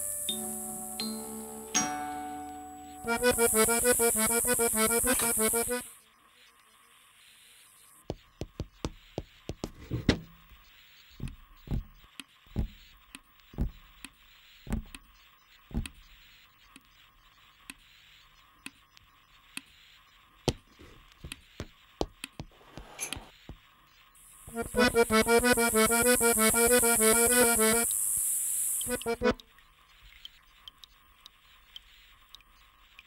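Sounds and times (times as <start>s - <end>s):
faint steady hum: 0.0s - 33.0s
sharp knocks and taps: 8.1s - 10.4s, 11.2s - 12.9s, 13.6s - 13.9s, 14.7s - 15.0s, 15.7s - 16.0s, 20.5s - 23.7s.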